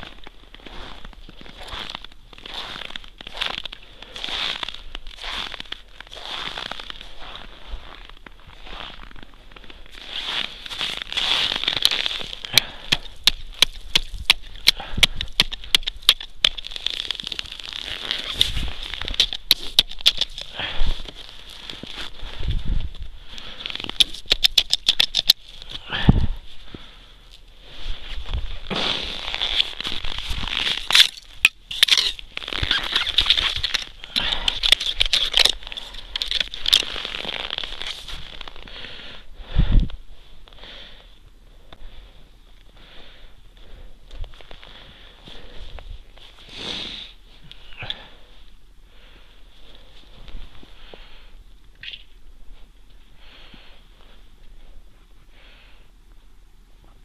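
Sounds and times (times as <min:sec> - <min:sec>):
crunching and scraping on ice: 0:00.0 - 0:39.2, 0:43.6 - 0:48.5.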